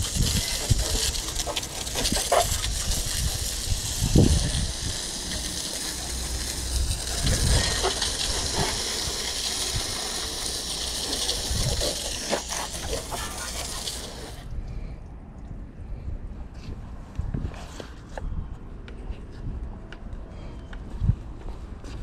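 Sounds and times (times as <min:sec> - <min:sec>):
water splashing off pavement: 0:00.0 - 0:14.4
hose spray hissing: 0:00.0 - 0:14.5.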